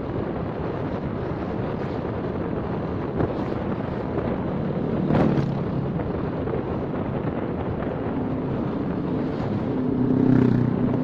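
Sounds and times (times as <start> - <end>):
wind rushing over microphone: 0.0 - 11.0
motorcycle engine running: 8.1 - 11.0.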